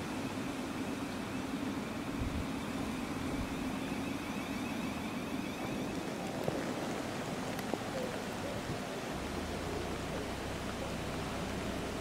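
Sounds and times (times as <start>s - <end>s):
high-pitched whine: 0.0s - 7.1s
background hiss: 0.0s - 12.0s
train electrical hum: 0.0s - 12.0s.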